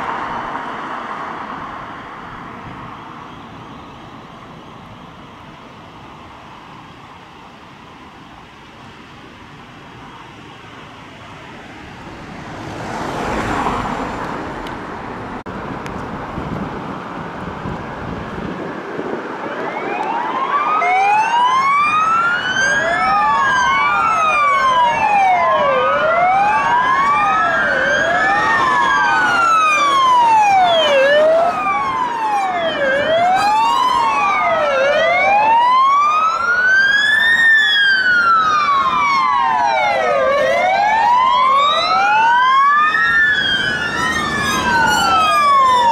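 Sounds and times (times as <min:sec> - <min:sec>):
police sirens wailing: 0:00.0 - 0:14.6, 0:18.2 - 0:45.9
vehicle passing quickly: 0:11.6 - 0:15.4, 0:37.8 - 0:45.9.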